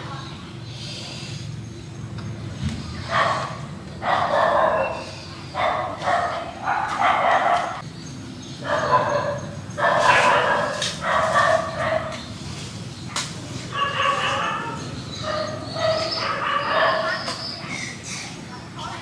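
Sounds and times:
animal calling: 8.6 - 12.2, 13.7 - 18.4.

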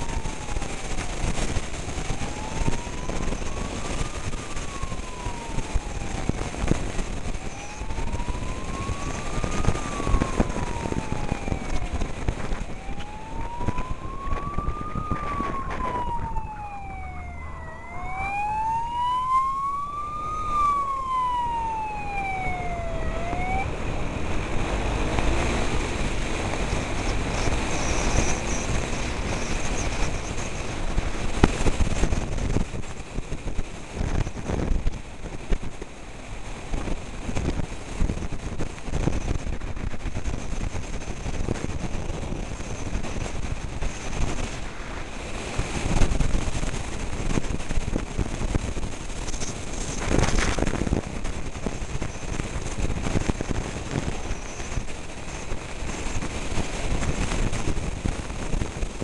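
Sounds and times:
wailing emergency siren: 0.0 - 32.7
road and wind noise: 0.0 - 59.0.

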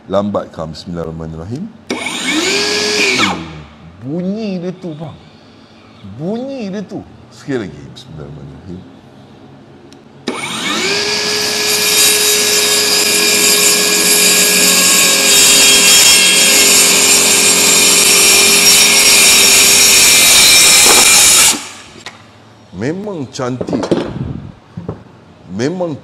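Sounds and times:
saw cutting wooden board: 1.9 - 3.6, 10.3 - 22.0
circular saw motor rising in pitch: 1.9 - 3.7, 10.3 - 22.0.

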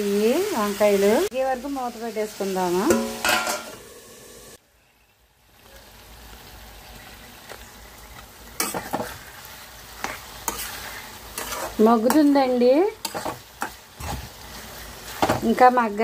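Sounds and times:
eggplant sizzling in hot oil: 0.0 - 16.0
metal spatula scraping pan: 8.6 - 15.6.

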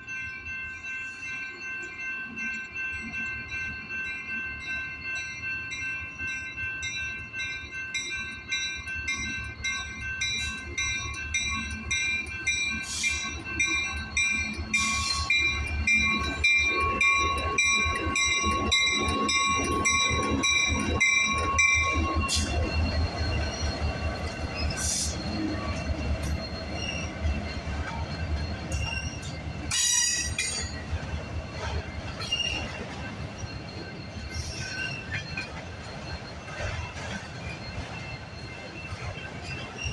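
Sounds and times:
crossing signal bell ringing: 0.0 - 39.9
diesel locomotives rumbling: 0.0 - 39.9
wheels clicking over rail joints: 10.4 - 39.9
high wheel squeals: 12.7 - 39.9.

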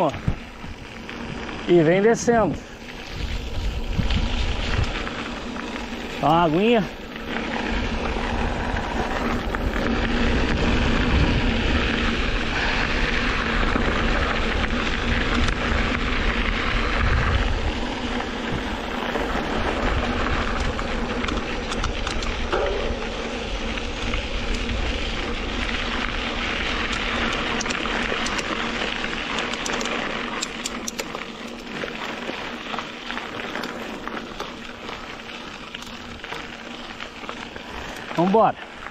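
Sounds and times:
bike tyres rolling over dirt: 0.0 - 38.9
wind buffeting microphone: 2.3 - 29.3.

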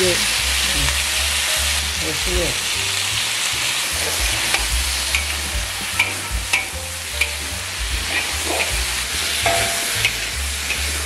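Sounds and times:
food sizzling in a pan: 0.0 - 11.0
spatula scraping and knocking pan: 3.9 - 11.0.

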